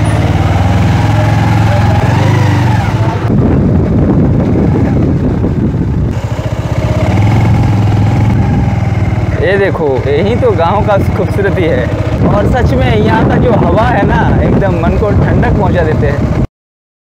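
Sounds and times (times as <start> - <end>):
motorcycle engine pulling away: 0.0 - 5.2, 6.0 - 13.3.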